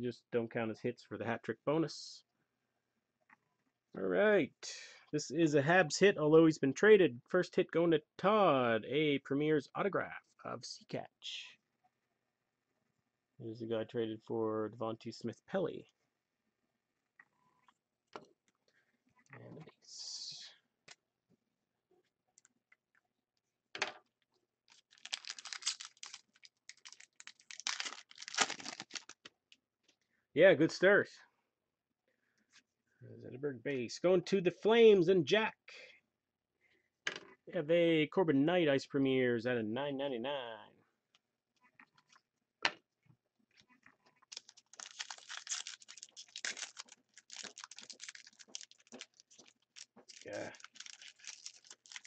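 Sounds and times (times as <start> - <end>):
wrapper crinkling and crackling: 24.7 - 29.3, 44.2 - 52.0.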